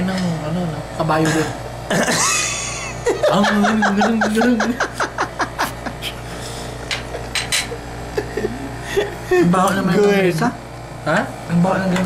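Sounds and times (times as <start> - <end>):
man laughing: 1.9 - 6.3, 6.9 - 9.5.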